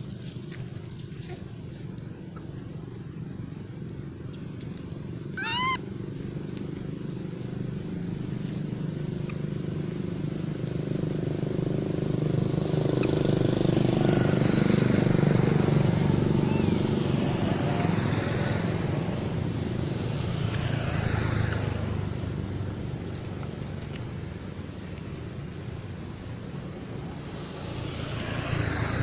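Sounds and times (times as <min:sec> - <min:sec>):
motor engine running: 0:00.0 - 0:29.0
monkey squealing: 0:05.3 - 0:05.9.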